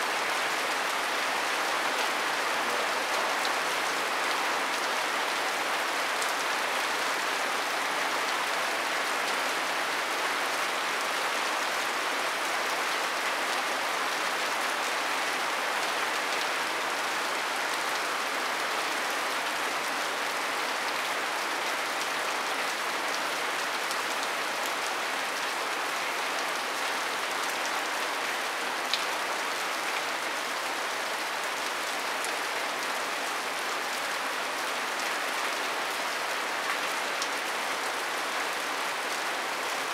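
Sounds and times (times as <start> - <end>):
rain pattering on thatch roof: 0.0 - 39.9.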